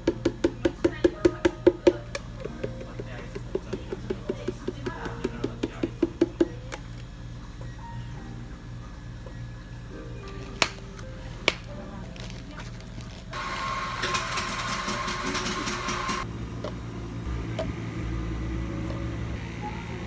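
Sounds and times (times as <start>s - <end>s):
low hum: 16.2s - 20.0s.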